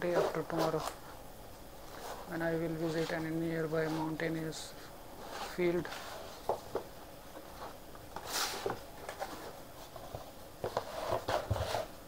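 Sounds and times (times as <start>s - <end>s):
cardboard box scrapes and taps: 10.1s - 11.9s.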